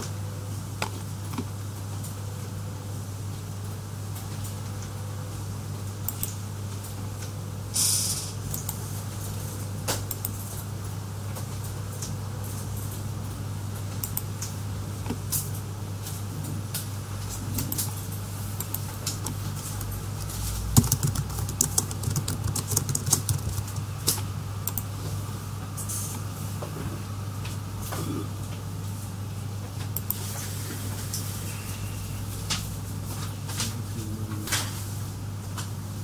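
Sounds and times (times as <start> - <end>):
steady low hum: 0.0 - 36.0
brief hiss: 7.7 - 8.4.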